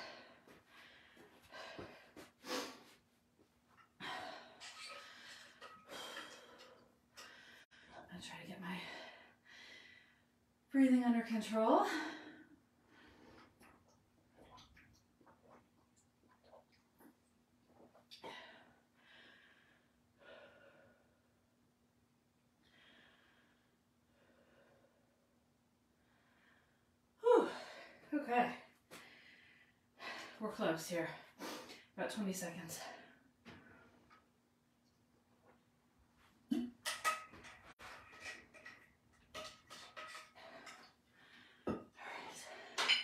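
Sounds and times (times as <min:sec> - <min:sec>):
woman breathing: 0:00.0 - 0:03.0, 0:03.9 - 0:08.1, 0:08.7 - 0:10.4, 0:18.2 - 0:21.3, 0:22.6 - 0:25.3, 0:26.0 - 0:30.4, 0:40.1 - 0:43.0
woman breathing hard: 0:00.0 - 0:03.0.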